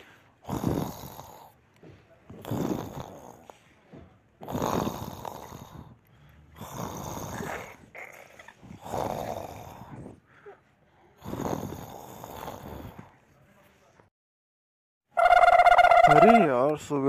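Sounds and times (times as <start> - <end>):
man snoring: 0.4 - 1.6, 2.4 - 3.5, 4.4 - 5.9, 6.6 - 7.8, 8.8 - 10.0, 11.2 - 13.1.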